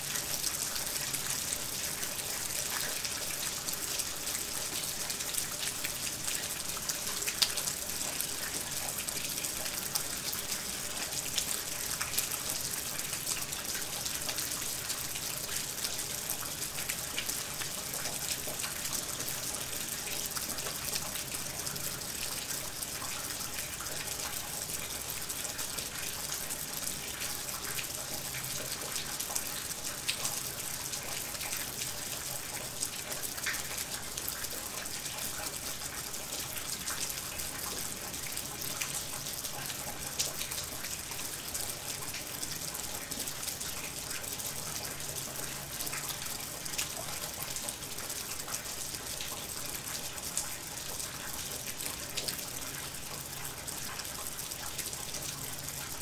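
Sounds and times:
steady rain falling: 0:00.0 - 0:56.0.

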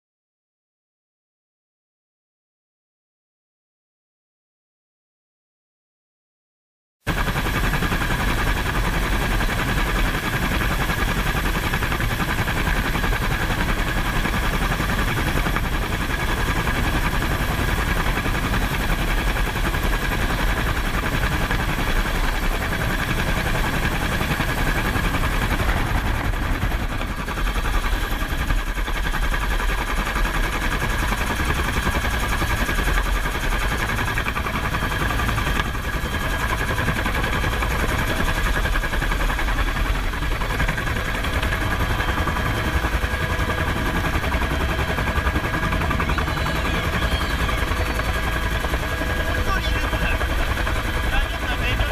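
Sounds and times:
helicopter rotor chop: 0:07.1 - 0:51.9
turbine engine whine: 0:07.1 - 0:51.9.

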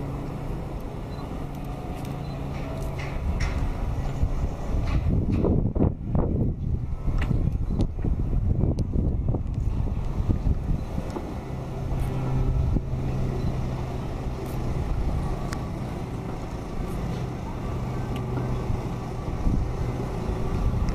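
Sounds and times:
distant traffic rumble: 0:00.0 - 0:20.9
low engine hum: 0:00.0 - 0:20.9.

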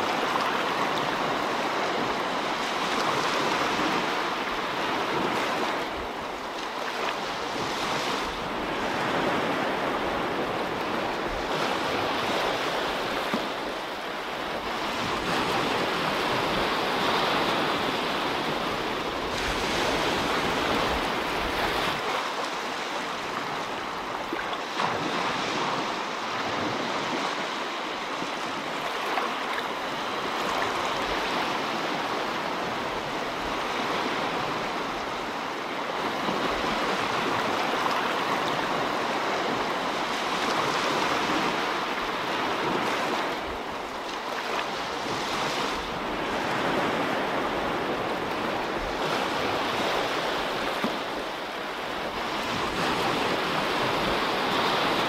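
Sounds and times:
wind rumble on microphone: 0:00.0 - 0:55.0.

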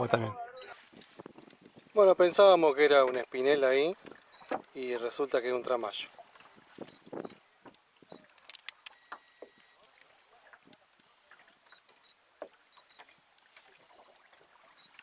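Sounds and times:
faint steady hiss: 0:00.0 - 0:15.0
small knocks and clicks: 0:07.2 - 0:13.1.

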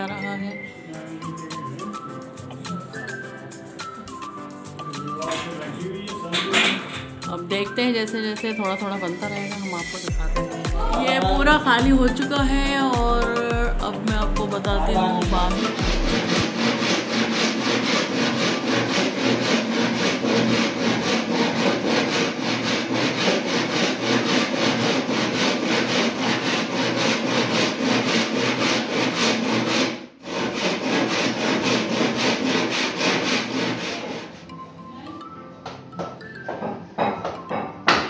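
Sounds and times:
handsaw cutting wood: 0:09.3 - 0:34.5.

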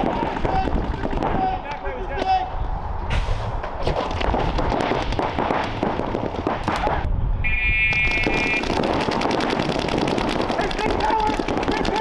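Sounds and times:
paintball markers firing: 0:03.9 - 0:07.1, 0:07.9 - 0:12.0.

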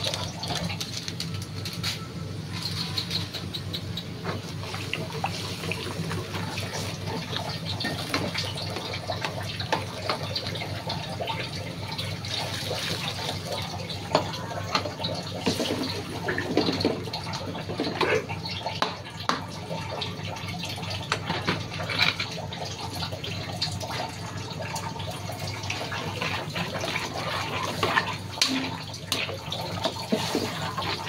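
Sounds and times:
liquid sloshing: 0:21.2 - 0:31.0
metal ladle scraping a pan: 0:25.8 - 0:31.0.

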